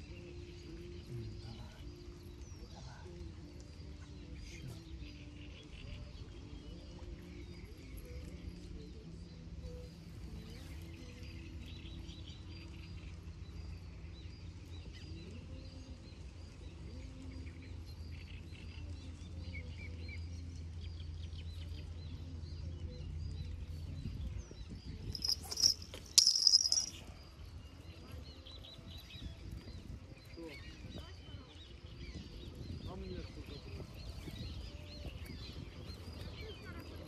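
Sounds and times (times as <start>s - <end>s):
faint chirping: 24.9s - 28.2s.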